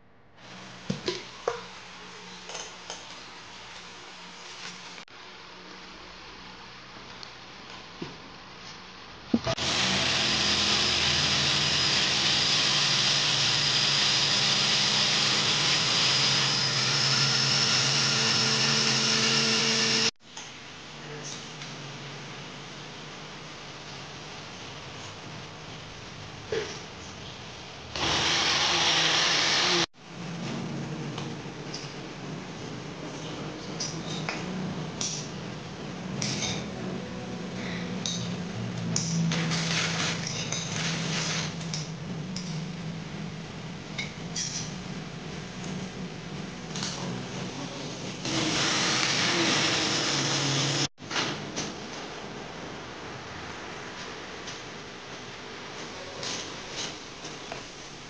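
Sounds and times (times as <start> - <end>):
blender motor whirring: 9.5 - 20.2, 28.0 - 29.9, 48.2 - 50.9.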